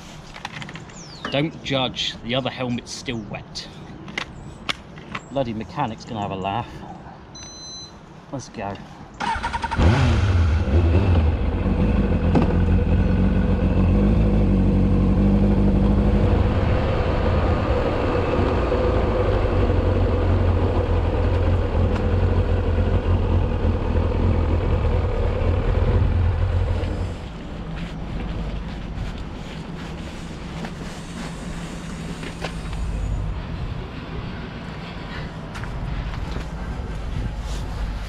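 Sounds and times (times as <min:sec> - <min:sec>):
motorcycle engine running: 0:09.7 - 0:27.7.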